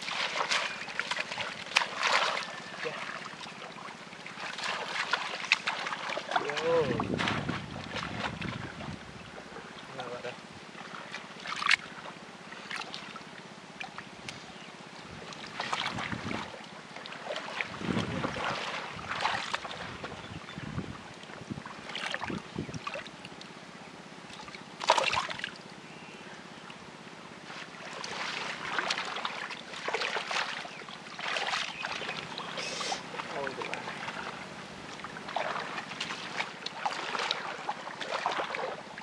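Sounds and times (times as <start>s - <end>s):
sharp water splashes: 0.0s - 8.9s, 10.9s - 12.0s, 15.4s - 20.2s, 24.3s - 25.6s, 27.5s - 39.0s
muddy water sloshing: 0.0s - 23.6s, 24.3s - 25.8s, 26.5s - 39.0s.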